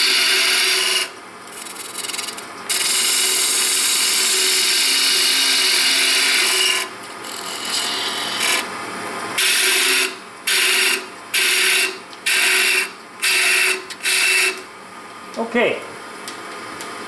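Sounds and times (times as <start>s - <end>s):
turning tool cutting wood: 0.0s - 8.7s
wood lathe humming: 0.0s - 8.7s.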